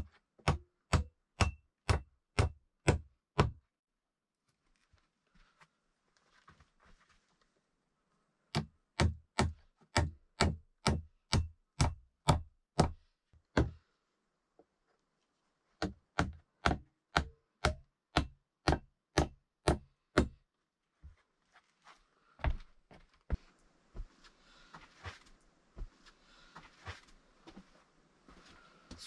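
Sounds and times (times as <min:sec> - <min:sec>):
hammer striking nails into wood: 0:00.4 - 0:03.6, 0:08.5 - 0:13.8, 0:15.8 - 0:20.4.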